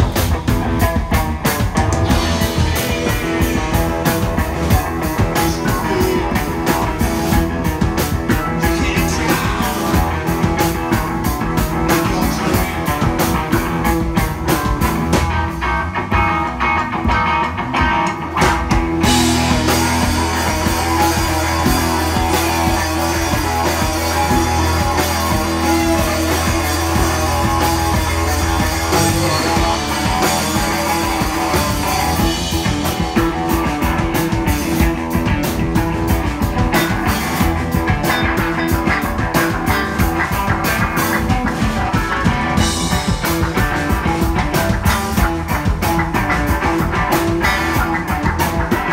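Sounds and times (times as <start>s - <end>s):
rock band playing loudly: 0.0s - 48.9s
held bass note: 19.0s - 33.2s.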